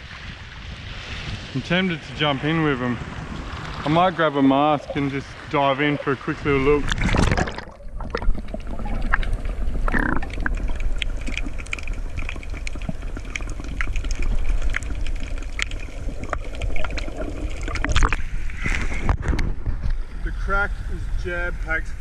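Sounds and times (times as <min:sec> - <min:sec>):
muffled underwater rumble: 0:02.4 - 0:22.0
sharp underwater clicks and crackles: 0:05.8 - 0:20.2.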